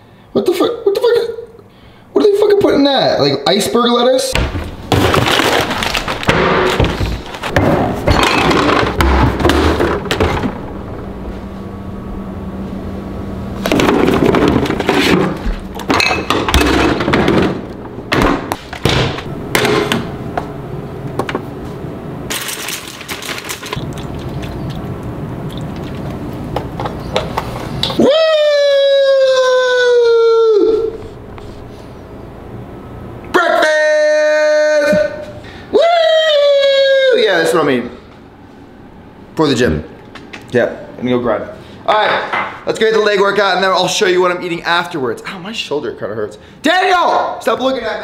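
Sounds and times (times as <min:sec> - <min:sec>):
refrigerator opening: 0:04.4 - 0:11.2
plastic bag crinkling: 0:04.9 - 0:07.5, 0:22.3 - 0:24.8.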